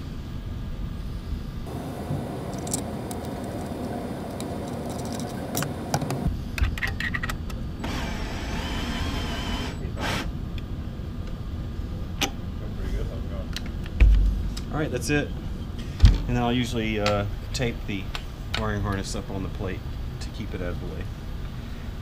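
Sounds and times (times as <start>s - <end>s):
cordless drill whirring: 7.8s - 10.3s.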